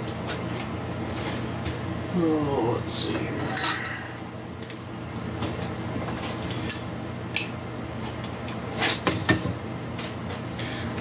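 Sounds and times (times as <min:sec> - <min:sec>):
steady low hum: 0:00.0 - 0:11.0
metal parts clinking: 0:03.4 - 0:04.0.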